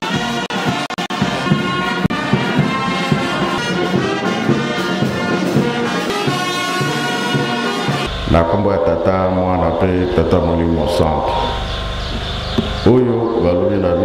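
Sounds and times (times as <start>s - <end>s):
brass band music: 0.0s - 10.5s.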